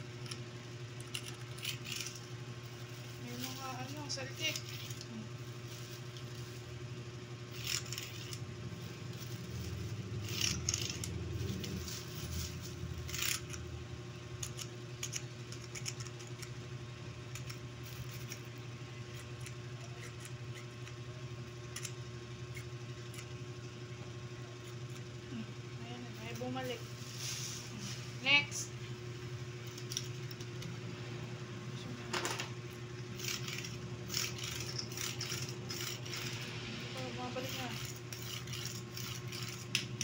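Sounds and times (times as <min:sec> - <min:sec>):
steady low hum: 0:00.0 - 0:40.0.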